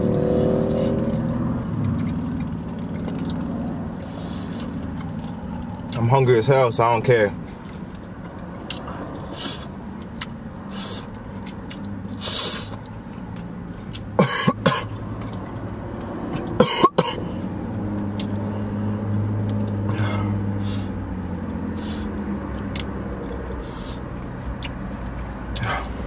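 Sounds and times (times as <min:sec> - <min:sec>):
man coughing: 0:14.2 - 0:14.9, 0:16.6 - 0:17.2
breathy exhales: 0:19.9 - 0:21.0, 0:23.6 - 0:24.1, 0:25.6 - 0:26.0.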